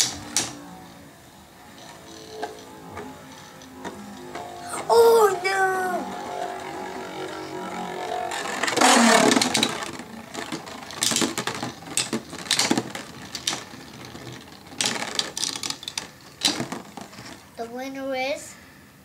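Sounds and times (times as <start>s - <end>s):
spinning top launched whirring: 0.0s - 17.5s
spinning tops clacking together: 5.4s - 17.5s.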